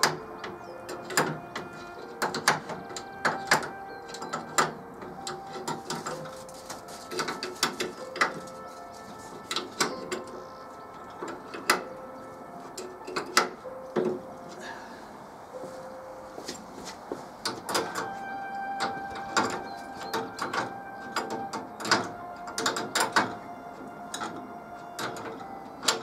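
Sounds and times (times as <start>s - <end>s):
hand tools clicking on metal: 0.0s - 8.6s, 9.3s - 10.4s, 11.1s - 11.9s, 12.7s - 14.2s, 18.8s - 23.4s, 24.1s - 24.4s, 25.0s - 26.0s.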